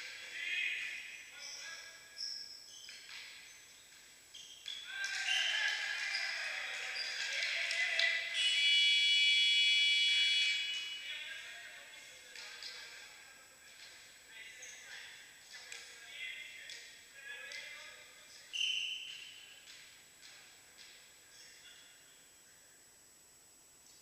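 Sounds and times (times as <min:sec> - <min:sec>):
voices shouting: 0:04.8 - 0:08.7
referee's whistle blast: 0:08.2 - 0:11.1, 0:18.5 - 0:19.4.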